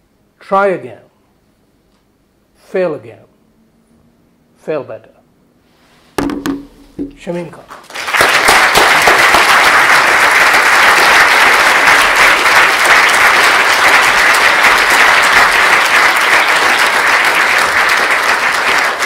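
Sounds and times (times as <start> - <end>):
audience applauding: 7.7 - 19.0.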